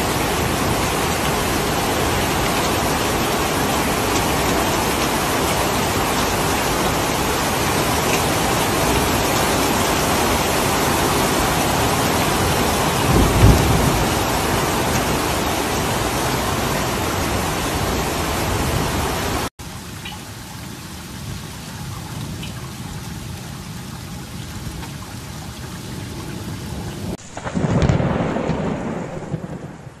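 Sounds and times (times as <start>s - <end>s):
thunder clap: 0.0s - 17.6s, 27.2s - 30.0s
low thunder rumble: 0.0s - 18.9s, 27.0s - 30.0s
heavy rain: 0.0s - 30.0s.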